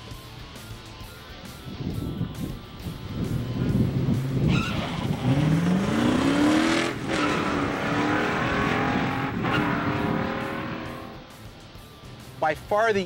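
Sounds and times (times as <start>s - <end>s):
car engine revving at full throttle: 3.0s - 11.2s
tire squeal: 4.4s - 11.2s.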